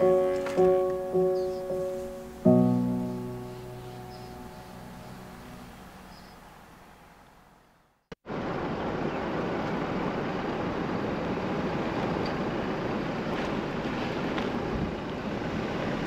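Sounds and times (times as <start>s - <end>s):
wind and road noise from car: 8.3s - 16.0s.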